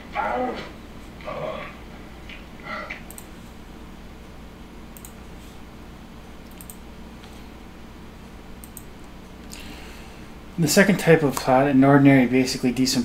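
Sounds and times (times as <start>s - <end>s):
low electrical hum: 0.0s - 13.0s
computer mouse clicks: 3.1s - 3.3s, 5.0s - 5.3s, 6.4s - 7.4s, 8.6s - 9.1s.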